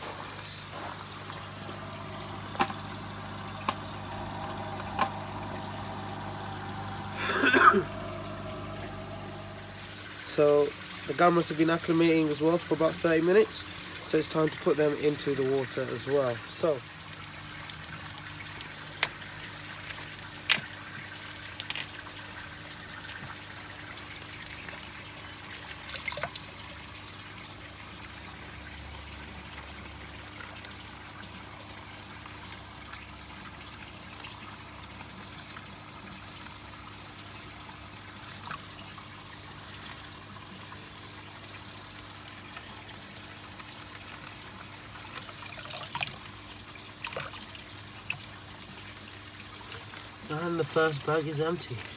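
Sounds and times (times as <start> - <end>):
water trickling in plastic tub: 0.0 - 10.5, 16.0 - 27.8, 29.5 - 51.9
water splashes: 0.0 - 13.1, 25.5 - 26.6, 38.2 - 51.9.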